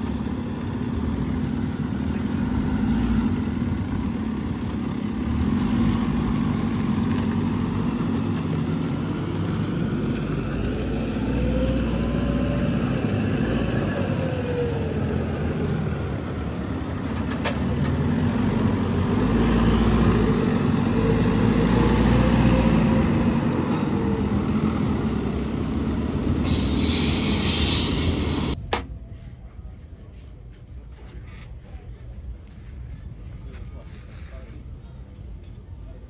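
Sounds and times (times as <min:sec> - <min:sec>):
engine running: 0:00.0 - 0:28.6
hiss: 0:26.4 - 0:28.6.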